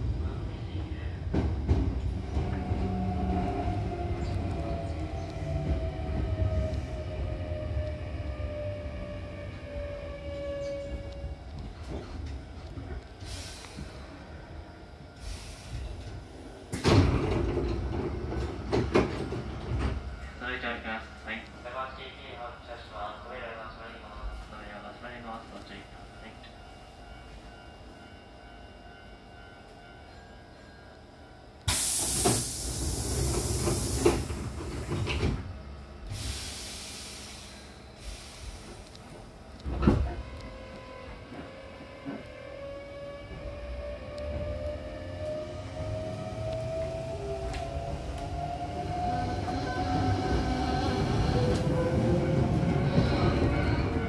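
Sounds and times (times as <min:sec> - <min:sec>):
air hiss of train doors: 0:13.2 - 0:14.3, 0:15.2 - 0:17.3, 0:31.6 - 0:35.4, 0:36.0 - 0:40.1
train door thud: 0:16.7 - 0:20.1, 0:31.7 - 0:35.5, 0:39.6 - 0:40.2.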